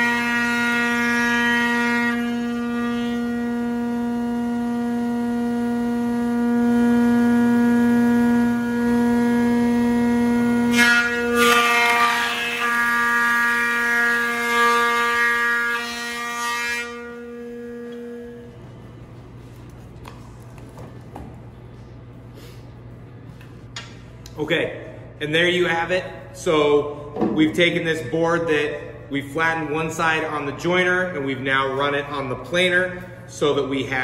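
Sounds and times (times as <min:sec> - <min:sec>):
planer cutting wood: 0:00.0 - 0:18.5
planer whining: 0:00.0 - 0:18.8.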